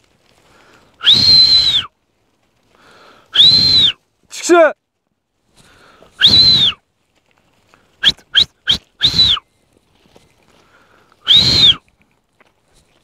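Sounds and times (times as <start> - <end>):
person whistling sharply: 1.0 - 1.9, 3.3 - 4.0, 6.2 - 6.8, 8.0 - 9.4, 11.2 - 11.8.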